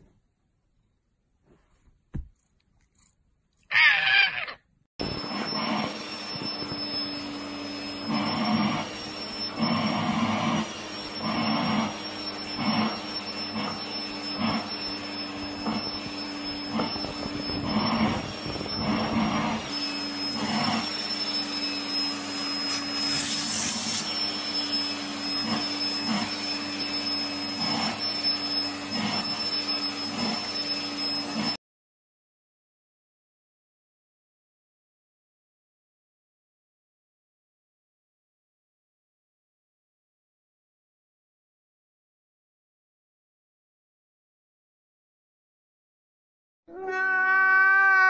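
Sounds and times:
vacuum cleaner running: 5.0s - 31.6s.

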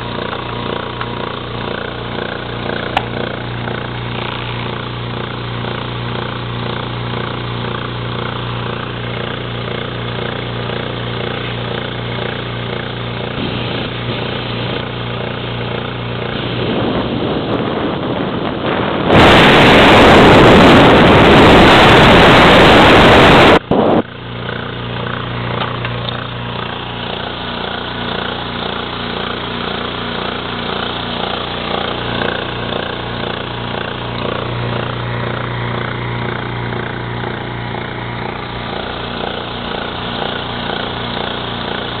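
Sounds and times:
air compressor running: 0.0s - 42.0s
loud rushing air: 12.6s - 42.0s.

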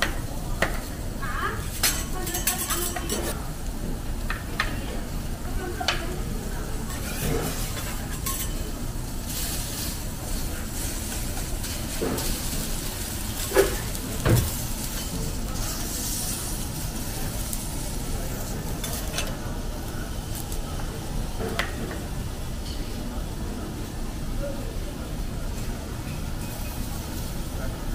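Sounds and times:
prawn sizzling: 0.1s - 24.0s
metal spatulas scraping griddle: 1.8s - 3.4s, 6.9s - 8.6s, 18.4s - 19.4s.

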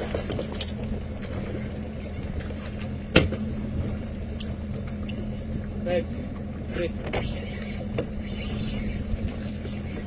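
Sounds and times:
outboard motor idling: 0.0s - 10.0s.

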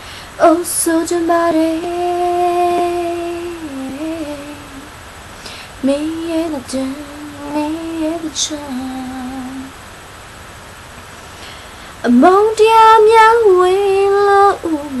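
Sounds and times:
woman humming: 0.4s - 4.9s.

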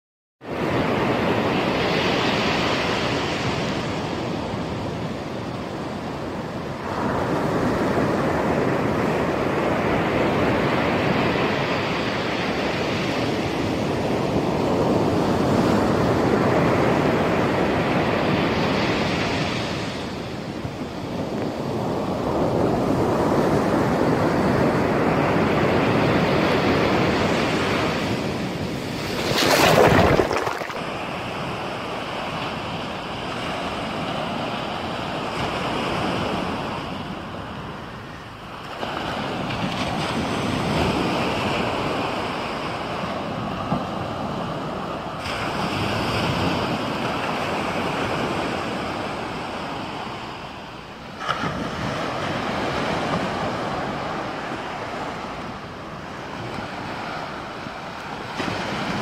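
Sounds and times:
wind on microphone: 0.5s - 33.1s
ocean waves breaking: 21.6s - 50.6s.

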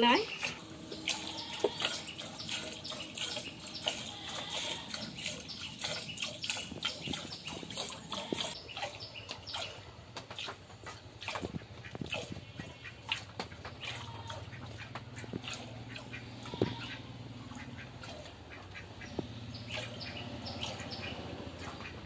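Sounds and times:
milk squirting into bucket: 0.4s - 17.0s.

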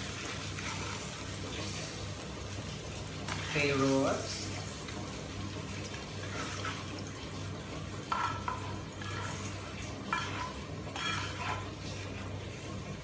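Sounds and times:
utensil scraping a pot: 6.2s - 7.0s, 8.0s - 12.3s.

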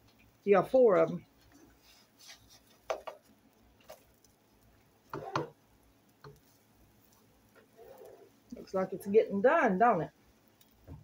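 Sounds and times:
plastic spatula scraping frying pan: 5.1s - 5.6s, 6.3s - 9.2s.

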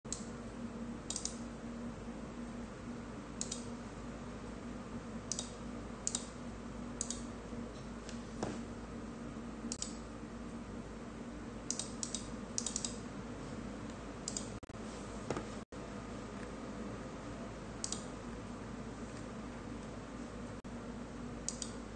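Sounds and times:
steady low hum: 0.1s - 21.9s
keyboard clicks: 1.1s - 1.4s, 3.4s - 3.7s, 7.0s - 7.2s, 11.7s - 13.0s, 17.8s - 18.1s, 21.5s - 21.8s.

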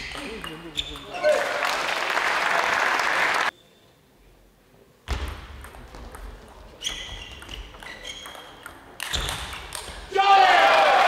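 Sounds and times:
short high squeaks: 6.8s - 9.3s.

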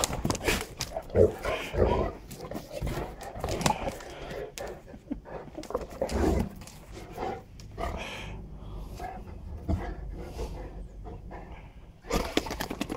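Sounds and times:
dogs fighting: 0.0s - 12.9s.

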